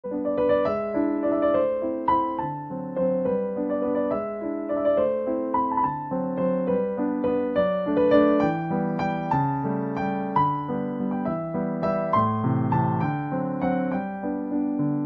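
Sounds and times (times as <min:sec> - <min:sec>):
gentle keyboard music: 0:00.0 - 0:15.0.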